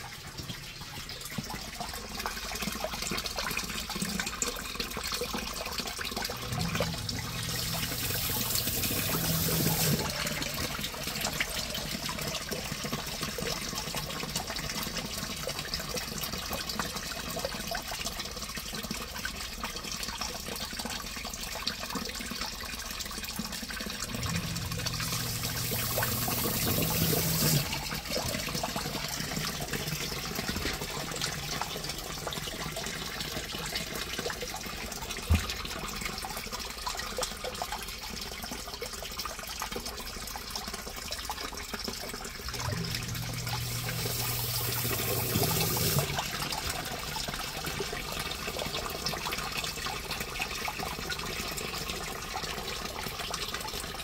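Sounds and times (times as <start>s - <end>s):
water splashing and trickling: 0.0s - 54.0s
sump pump low hum: 6.2s - 13.2s, 23.9s - 32.3s, 42.4s - 48.9s
water rushing: 6.4s - 11.5s, 24.1s - 28.3s, 42.6s - 46.8s.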